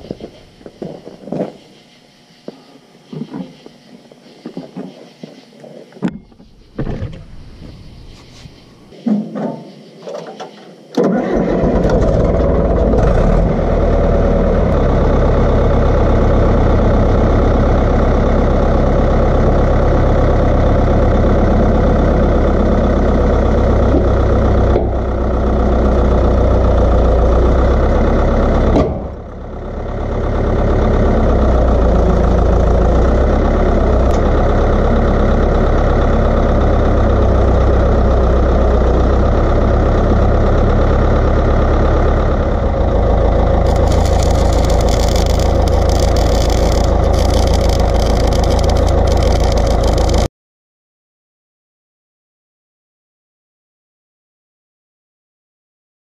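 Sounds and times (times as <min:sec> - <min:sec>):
bulldozer diesel engine running: 0:11.0 - 0:50.3.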